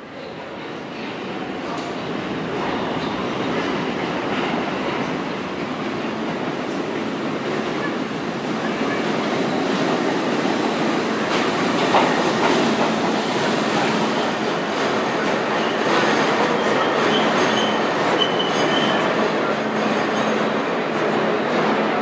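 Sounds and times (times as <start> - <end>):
subway train wheels clattering: 0.0 - 22.0
wheel and brake squeals: 15.6 - 19.1.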